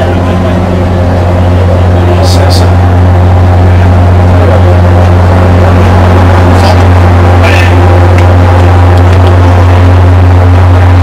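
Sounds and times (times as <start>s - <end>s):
ship machinery humming: 0.0s - 11.0s.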